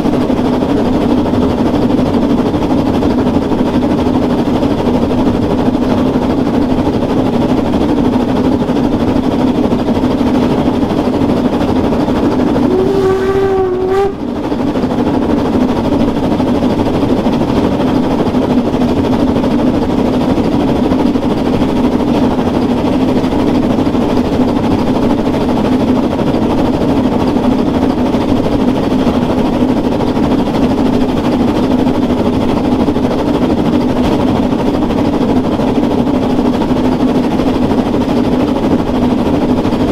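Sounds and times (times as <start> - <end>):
steam train running: 0.0 - 39.9
train whistle blast: 12.4 - 14.4.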